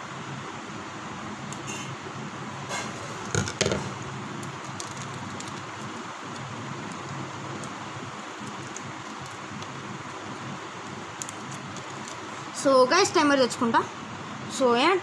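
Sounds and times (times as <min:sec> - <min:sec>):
packet crinkling: 0:04.4 - 0:12.3.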